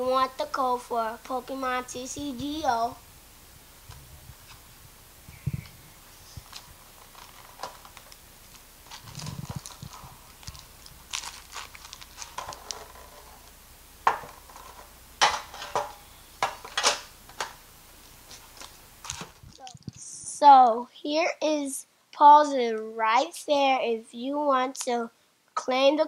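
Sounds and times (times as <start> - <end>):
foil wrappers crinkling: 6.0 - 20.0.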